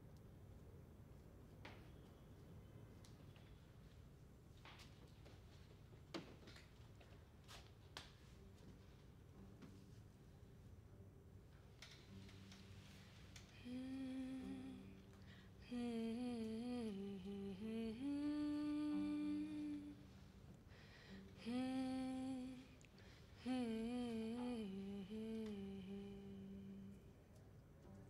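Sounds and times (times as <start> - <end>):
person humming: 13.5 - 20.0, 21.3 - 27.1.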